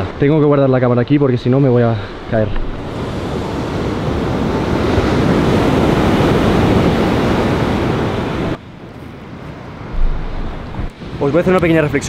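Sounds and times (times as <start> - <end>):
ocean surf on sandy beach: 1.6 - 12.0
wind on microphone: 2.6 - 12.0.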